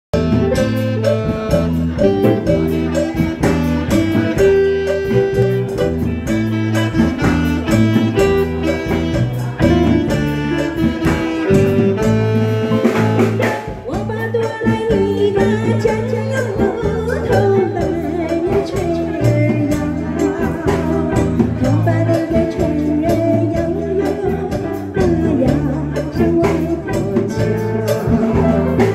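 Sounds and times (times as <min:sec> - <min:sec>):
keyboard: 0:00.1 - 0:28.9
plucked guitar-like notes: 0:00.1 - 0:28.9
steady bass line: 0:00.1 - 0:28.9
woman singing: 0:13.8 - 0:28.9.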